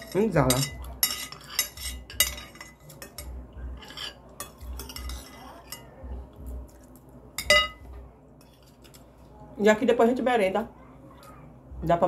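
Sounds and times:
spoons scraping glass plates: 0:00.0 - 0:06.0.

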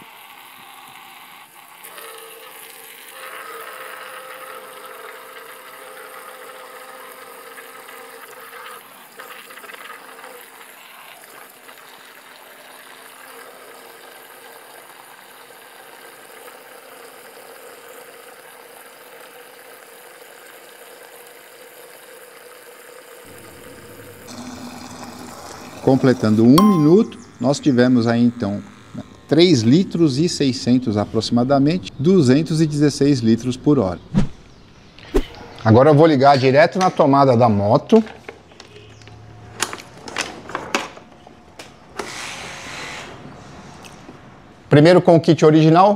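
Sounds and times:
electric water pump humming: 0:00.0 - 0:31.8
water jet hissing into bucket: 0:23.2 - 0:26.6.

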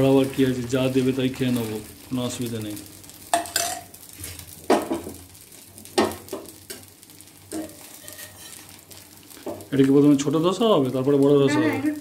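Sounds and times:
faint batter sizzle: 0:00.0 - 0:12.0
utensils scraping on iron griddle: 0:07.5 - 0:08.8.

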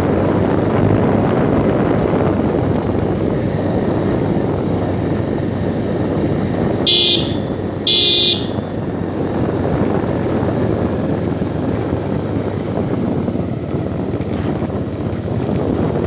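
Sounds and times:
motorcycle engine running: 0:00.0 - 0:16.0
wind rushing over microphone: 0:00.0 - 0:16.0.

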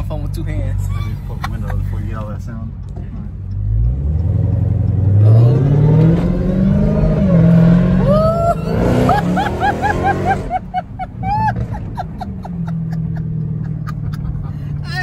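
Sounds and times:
car engine accelerating hard: 0:03.1 - 0:15.0
passenger whooping: 0:07.2 - 0:15.0
person laughing: 0:08.0 - 0:14.8.

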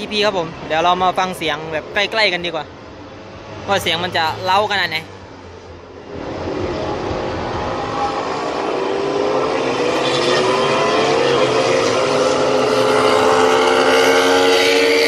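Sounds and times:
racing motorcycles accelerating: 0:06.0 - 0:15.0.

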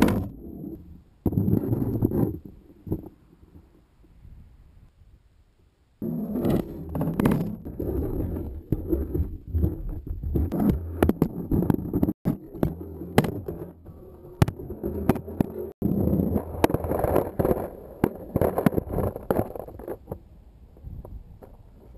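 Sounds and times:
skateboard wheels rumbling: 0:06.0 - 0:21.9
skateboard clacking over bumps: 0:06.4 - 0:20.2.

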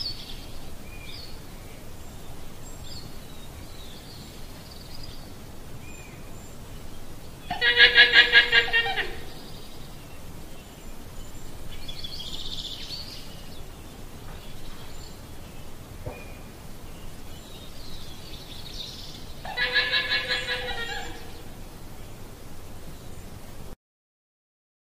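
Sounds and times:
llama calling: 0:07.5 - 0:09.4, 0:19.4 - 0:21.5.

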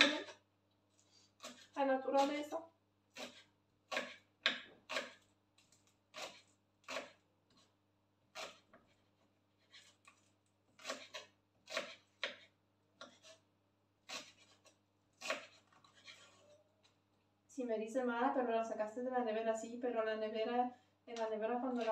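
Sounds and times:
knife slicing on wooden board: 0:01.3 - 0:01.8, 0:03.1 - 0:07.7, 0:08.3 - 0:13.4, 0:14.0 - 0:16.5.

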